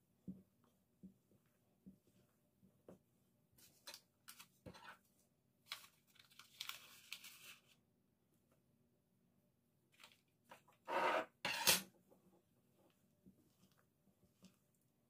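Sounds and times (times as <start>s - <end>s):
paper sachet crinkling and tearing: 5.7s - 7.8s.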